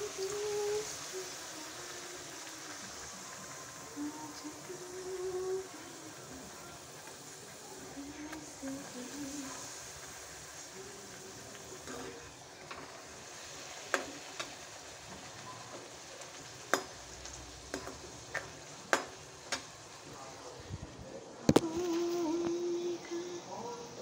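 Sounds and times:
deep-frying sizzle: 0.0s - 24.0s
metal spoon clinking on pan: 16.7s - 17.0s, 17.7s - 19.7s.

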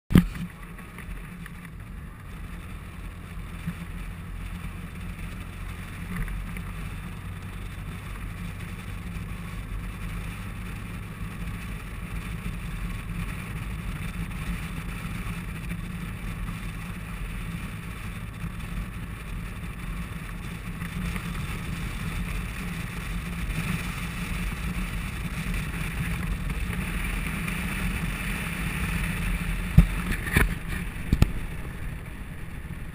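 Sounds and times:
motorcycle engine drone: 0.1s - 32.9s
wind and road noise: 0.1s - 32.9s.

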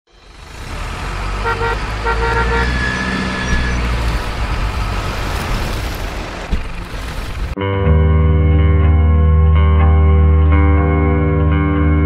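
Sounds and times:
truck engine rumble: 0.1s - 7.6s
truck horn toots: 1.3s - 4.1s.

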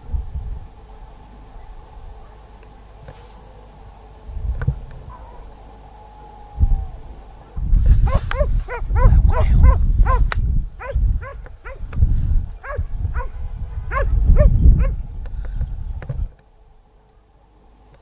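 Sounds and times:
wind rumble on microphone: 0.0s - 2.3s, 4.2s - 5.6s, 6.4s - 16.7s
dogs barking and baying: 5.0s - 15.1s.

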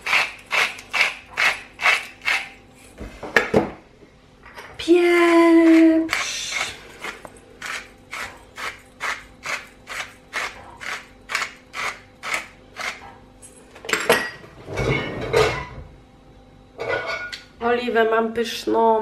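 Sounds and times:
pepper mill grinding: 0.0s - 2.6s, 5.0s - 13.1s.

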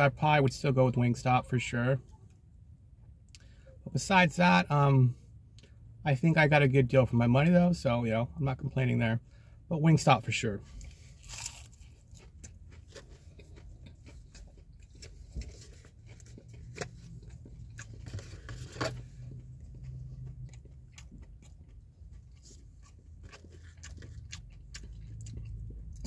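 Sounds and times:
person chewing and biting: 10.8s - 26.0s.

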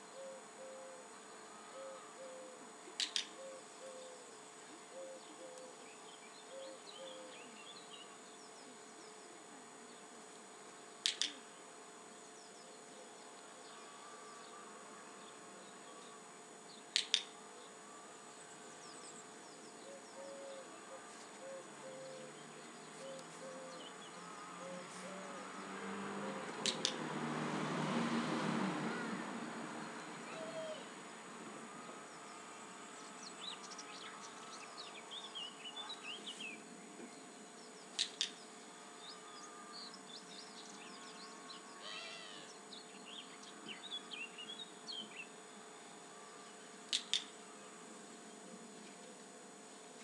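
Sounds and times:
faint chirping: 0.0s - 10.2s, 11.1s - 26.5s
clicker double clicks: 11.0s - 11.4s, 16.9s - 17.3s, 26.6s - 27.0s.

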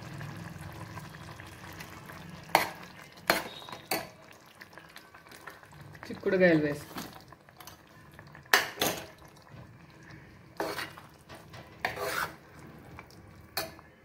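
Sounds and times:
metal ladle scraping metal pot: 10.6s - 12.6s.

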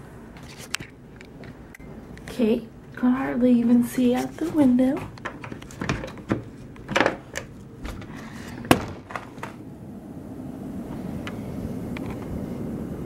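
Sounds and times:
handling knocks and clicks: 4.2s - 9.6s
blizzard wind rushing: 9.6s - 13.0s.

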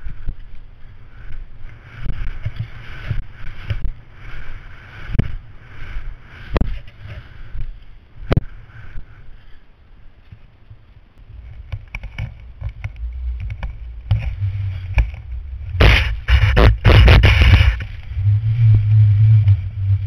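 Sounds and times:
skis swishing through snow: 0.0s - 8.2s, 13.1s - 20.0s
wind rumble on microphone: 0.0s - 20.0s.

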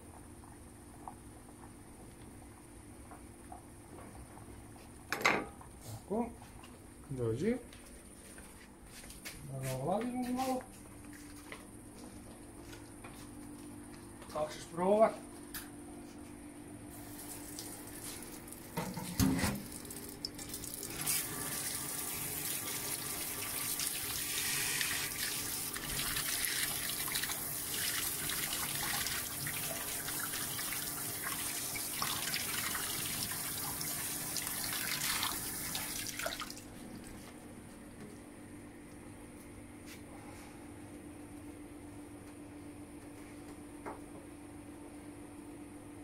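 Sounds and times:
tap water splashing into sink: 25.2s - 36.6s.

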